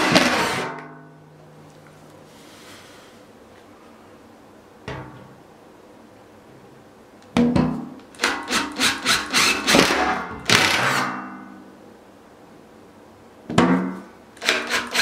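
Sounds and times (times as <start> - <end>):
power drill grinding plastic: 8.4 - 11.0.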